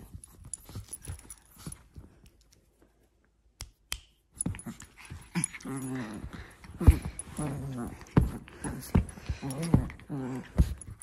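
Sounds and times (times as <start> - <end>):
clicks and rustles on leather: 4.4 - 11.0.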